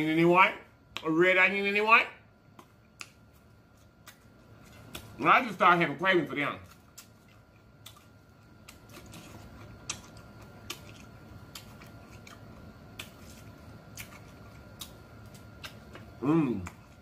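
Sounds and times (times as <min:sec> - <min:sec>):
faint steady hum: 0:00.0 - 0:17.0
wet clicks and lip smacks: 0:02.5 - 0:05.2, 0:06.7 - 0:13.3, 0:13.9 - 0:16.8
man chewing: 0:02.6 - 0:05.2, 0:06.6 - 0:17.0.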